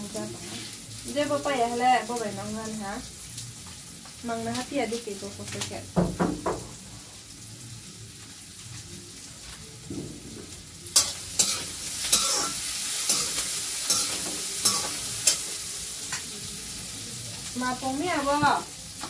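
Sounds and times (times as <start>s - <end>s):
food sizzling in hot oil: 0.0s - 19.0s
metal spatula scraping pan: 11.0s - 15.5s.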